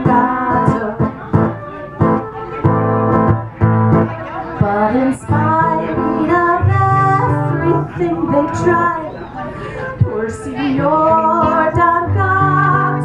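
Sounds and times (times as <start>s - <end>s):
woman singing a folk song: 0.0s - 1.3s, 4.6s - 13.0s
acoustic guitar strumming: 0.0s - 13.0s.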